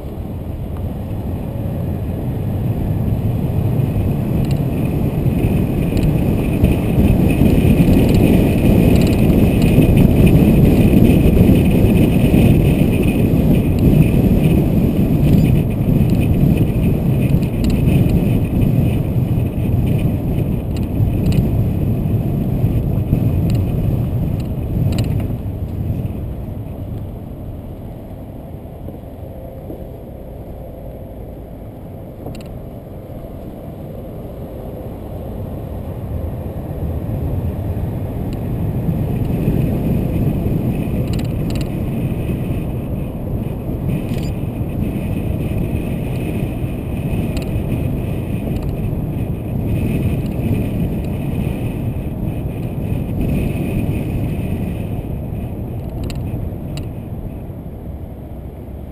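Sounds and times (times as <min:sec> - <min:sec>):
car road and wind noise: 0:00.0 - 0:58.9.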